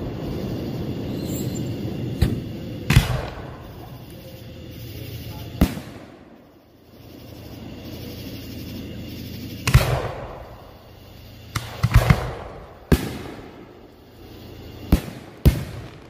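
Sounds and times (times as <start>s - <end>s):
fireworks booming: 0.0s - 4.1s, 5.5s - 6.4s, 9.5s - 10.8s, 11.5s - 16.0s
fireworks crackle: 0.0s - 16.0s
steady low hum: 0.0s - 16.0s.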